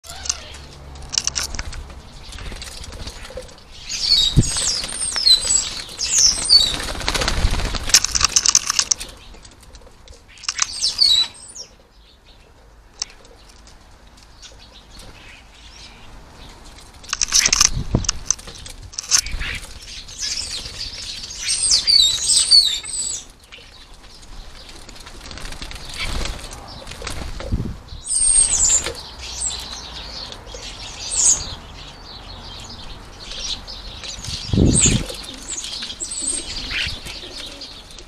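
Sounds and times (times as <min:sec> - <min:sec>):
high chirping bird calls: 0:00.0 - 0:01.4, 0:02.2 - 0:07.0, 0:10.3 - 0:12.4, 0:19.1 - 0:23.9, 0:27.5 - 0:38.0
birds flapping at a feeder: 0:00.1 - 0:11.2, 0:16.7 - 0:27.8.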